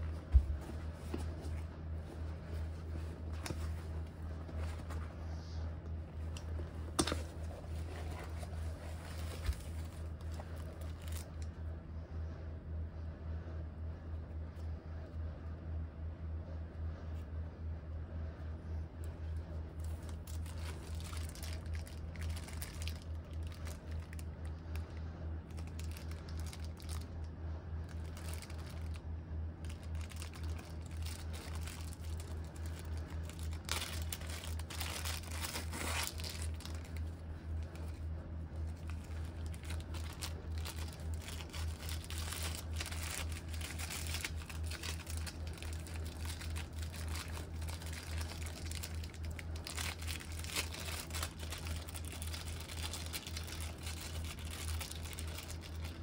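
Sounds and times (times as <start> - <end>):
steady low hum: 0.0 - 56.0
plastic bag crinkling: 6.0 - 11.5, 19.8 - 56.0.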